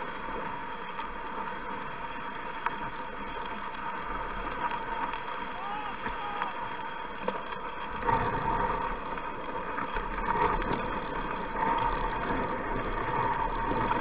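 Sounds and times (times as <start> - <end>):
sled gliding over snow: 0.0 - 14.0.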